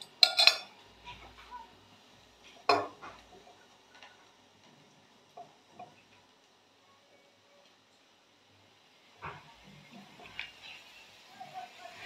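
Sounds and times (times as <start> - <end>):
spoon clinking against ceramic mugs: 0.0 - 0.7.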